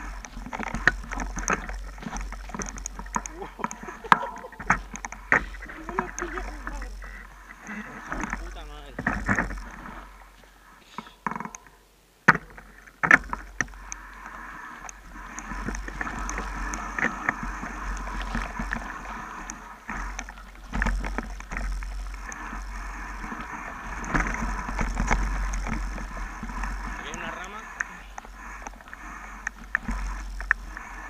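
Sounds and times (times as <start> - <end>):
bike knocks: 0.0 - 7.1
tyres rolling over leaves and gravel: 0.0 - 11.2, 12.6 - 31.0
bike rattles and clicks: 0.0 - 31.0.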